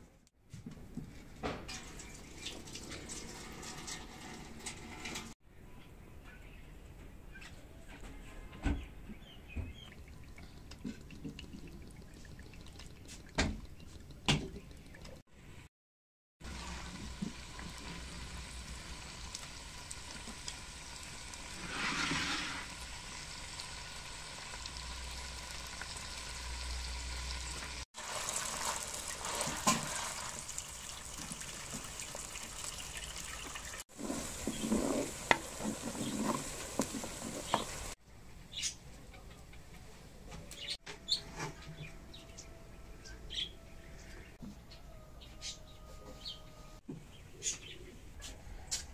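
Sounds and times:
oil sizzling in a pot: 16.4s - 38.0s.

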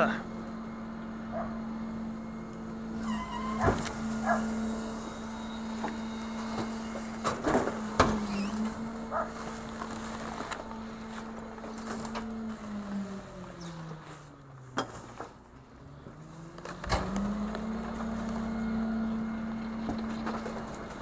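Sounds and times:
garbage truck engine hum: 0.0s - 21.0s.

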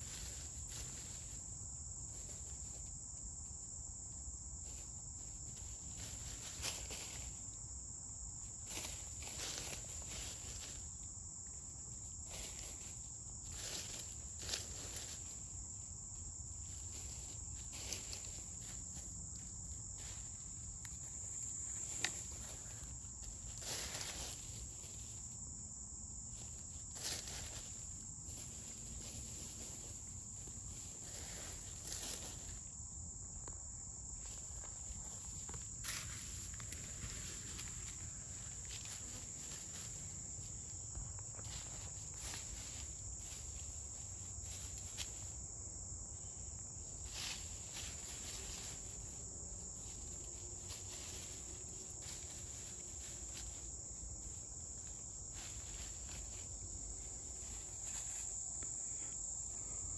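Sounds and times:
high-pitched insect drone: 0.0s - 59.9s.

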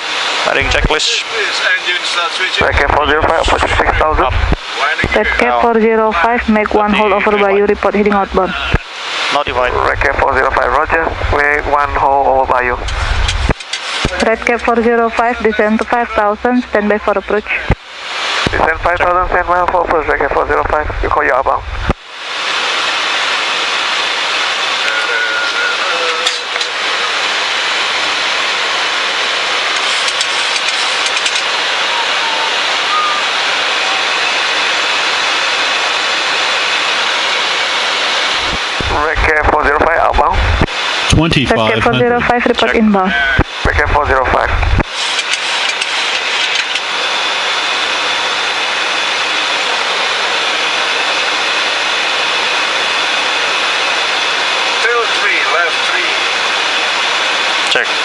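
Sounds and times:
aircraft cockpit rushing noise: 0.0s - 58.0s
faint high tone: 31.8s - 34.4s.

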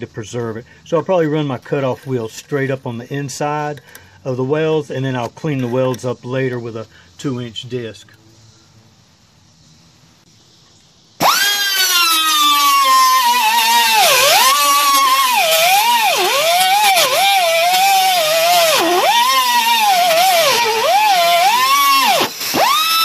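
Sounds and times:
air cutoff wheel whining: 11.2s - 23.0s.

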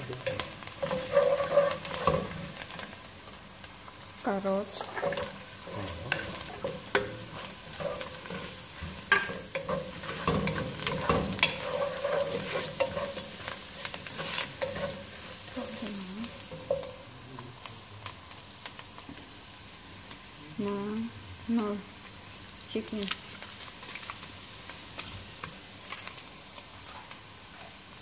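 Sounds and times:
vegetables sizzling in hot oil: 0.0s - 28.0s
wooden spoon knocking against pan: 7.8s - 13.1s.

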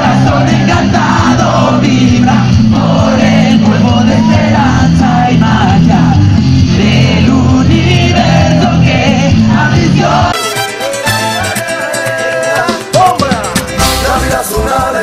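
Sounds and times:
lead singer singing: 0.0s - 10.4s, 11.3s - 15.0s
rock band playing live: 0.0s - 15.0s.

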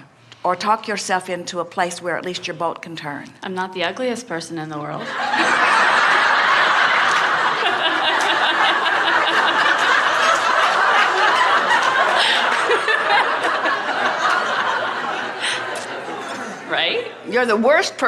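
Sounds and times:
crowd laughing: 5.0s - 16.7s.

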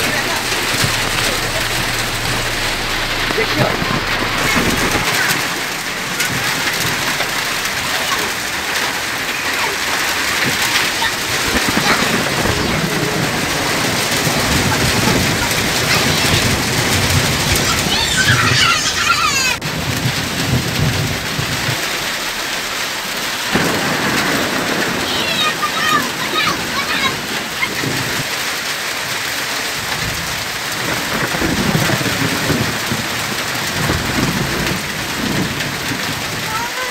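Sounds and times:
thunder rumbling: 0.0s - 28.3s, 29.8s - 36.9s
heavy rain and hail: 0.0s - 36.9s.

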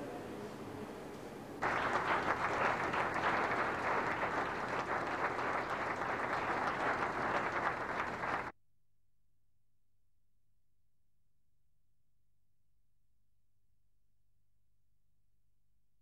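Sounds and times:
group applauding: 1.6s - 8.5s.

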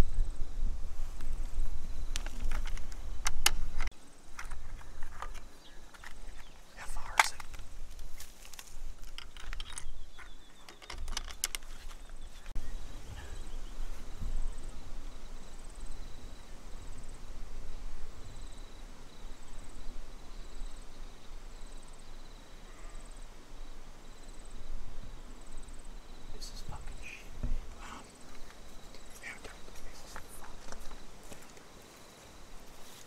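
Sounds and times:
wind rumbling on microphone: 0.0s - 21.5s, 24.4s - 31.2s
insect chirping faintly: 0.0s - 33.0s
microphone handling clicks and rustles: 2.1s - 12.5s.

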